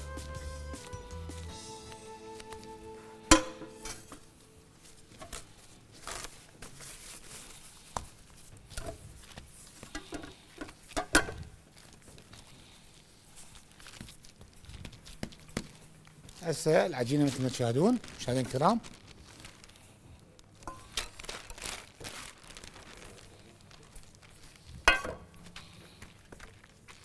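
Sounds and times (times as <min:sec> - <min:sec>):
dishes and utensils clinking: 0:03.3 - 0:04.3, 0:24.9 - 0:25.3.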